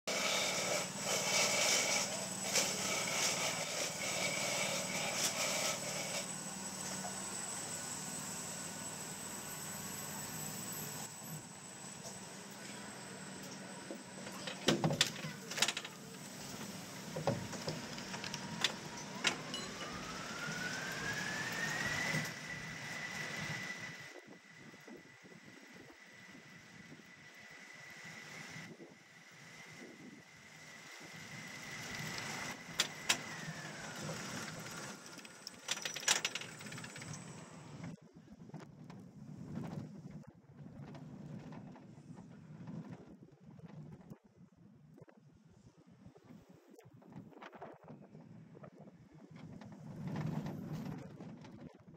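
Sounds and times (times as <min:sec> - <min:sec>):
lift drive whine: 0:00.1 - 0:39.0
roller coaster knocking and clacking: 0:32.2 - 0:37.4, 0:49.4 - 0:51.9.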